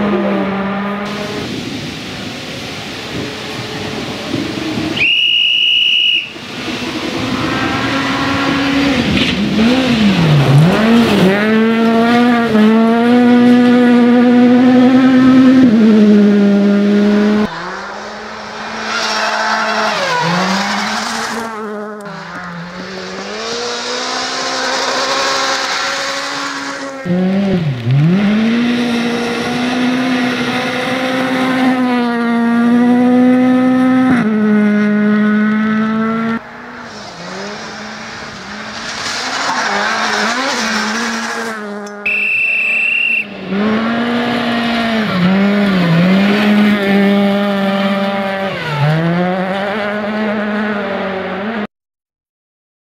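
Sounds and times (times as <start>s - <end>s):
rally car engine revving: 0.0s - 5.2s, 6.2s - 51.7s
gravel spray hissing: 36.8s - 42.2s.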